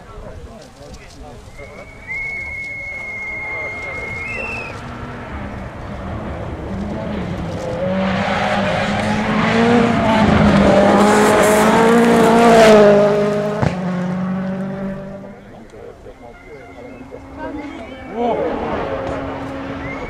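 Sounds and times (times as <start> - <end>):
rally car engine revving: 3.3 - 15.7, 16.9 - 20.0.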